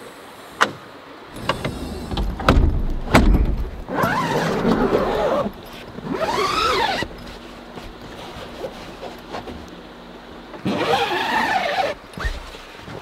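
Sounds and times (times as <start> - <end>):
van roof squealing: 1.3 - 7.3, 10.6 - 13.0
low thud: 2.1 - 3.9.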